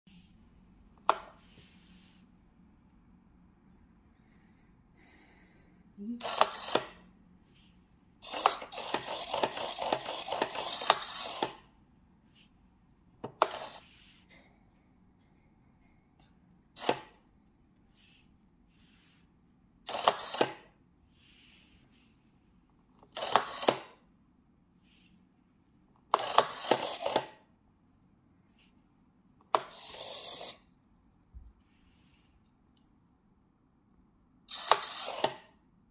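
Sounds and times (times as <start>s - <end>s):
small servos whirring: 6.2s - 7.1s, 8.2s - 11.6s, 19.9s - 20.7s, 26.1s - 27.4s, 29.6s - 30.7s, 34.5s - 35.5s.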